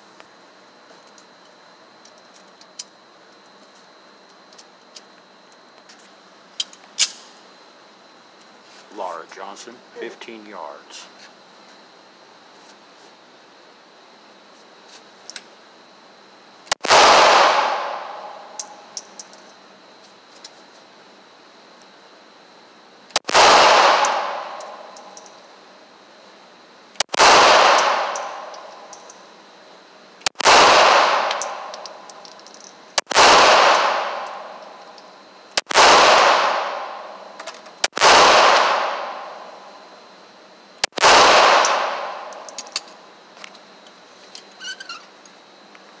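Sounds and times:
handgun shots echoing: 27.2 - 28.8, 40.9 - 42.6.

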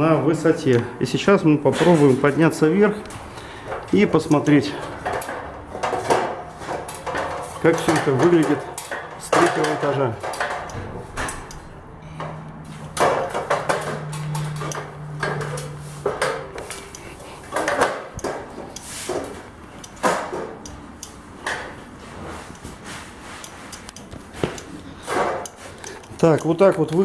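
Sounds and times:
knocks and clanks on steel scaffold: 4.8 - 16.8, 17.5 - 20.6, 24.4 - 25.6
steady low hum: 10.4 - 26.2.

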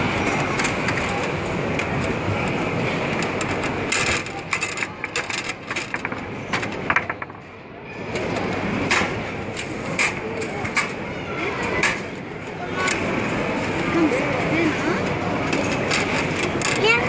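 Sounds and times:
crowded hall din: 0.0 - 17.0
foosball clacks: 3.2 - 7.4.

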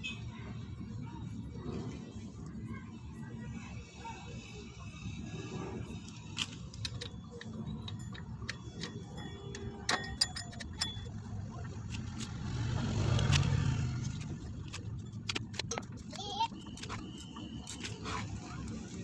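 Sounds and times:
small metal clicks and clinks: 5.8 - 12.4.

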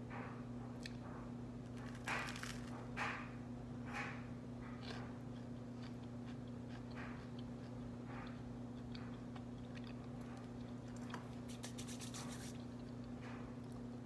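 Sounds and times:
steady low hum: 0.0 - 14.0
person chewing crunchy bread: 1.6 - 3.1, 4.5 - 14.0.

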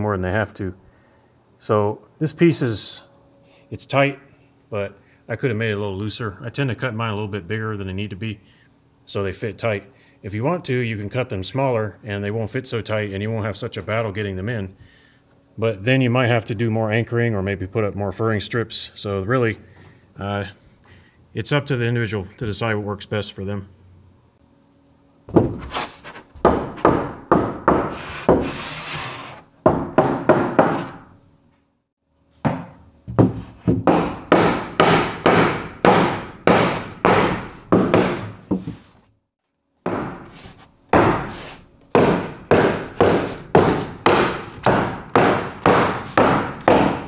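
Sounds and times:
hammer striking wooden block: 32.4 - 38.6, 39.9 - 40.3, 41.0 - 41.4, 42.0 - 47.0.

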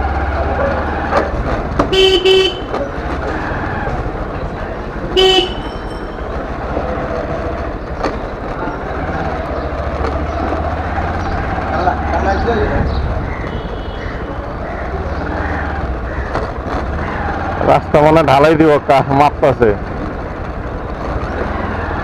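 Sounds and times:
motorcycle horn beeping: 1.9 - 2.8, 5.1 - 6.2
motorcycle engine running: 5.2 - 18.0.

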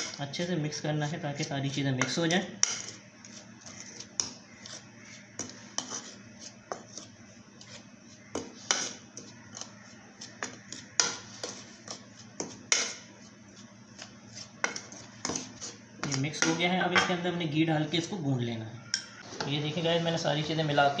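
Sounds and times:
metal spoon scraping ceramic plate: 2.0 - 7.8, 8.4 - 9.8.

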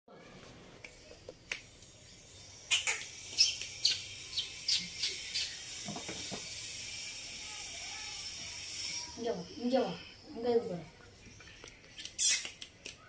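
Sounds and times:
sharp snapping clicks: 0.8 - 1.7, 2.8 - 4.1, 11.6 - 13.0.

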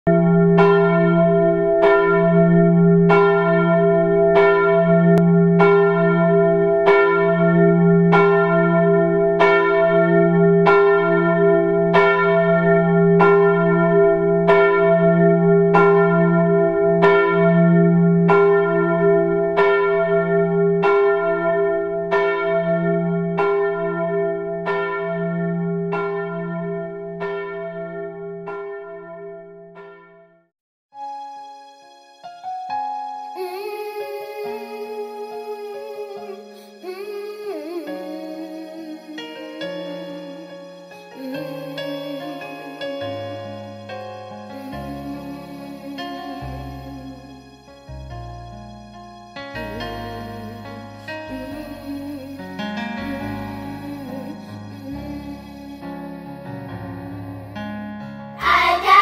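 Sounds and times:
church bell tolling: 0.1 - 30.4.

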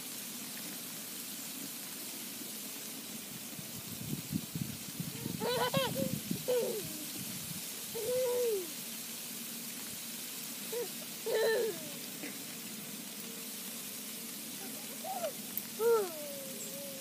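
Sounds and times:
faint outdoor hiss: 0.0 - 17.0
young child vocalizing: 5.2 - 7.1, 8.0 - 8.7, 10.7 - 12.0, 14.6 - 17.0.

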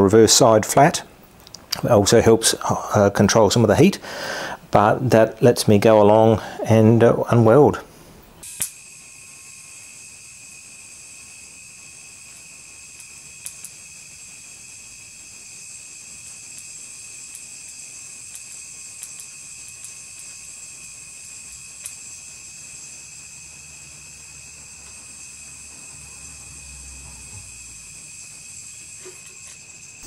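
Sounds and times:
welding arc hissing and crackling: 8.2 - 30.0.

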